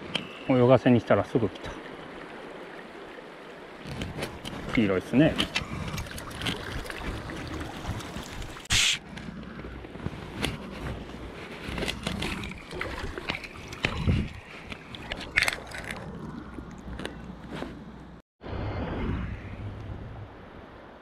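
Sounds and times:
river water flowing: 0:00.0 - 0:18.2
wind buffeting microphone: 0:12.8 - 0:15.4.

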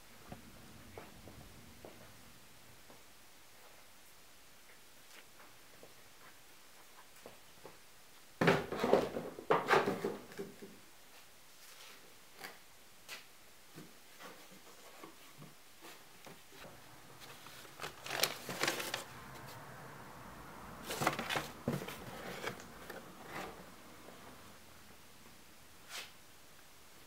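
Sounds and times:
cardboard box handled: 0:16.6 - 0:19.0, 0:20.8 - 0:23.6.

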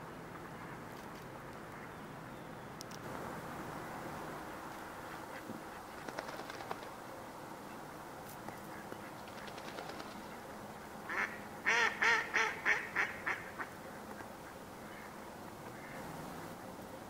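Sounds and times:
duck quacking: 0:11.1 - 0:16.6.

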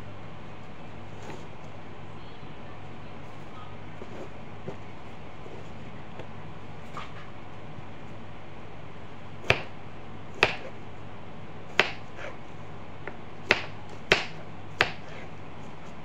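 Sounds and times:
low steady hum: 0:00.0 - 0:16.0
knife chopping on plastic board: 0:09.4 - 0:09.8, 0:10.4 - 0:10.8, 0:11.7 - 0:12.4, 0:13.0 - 0:15.3.

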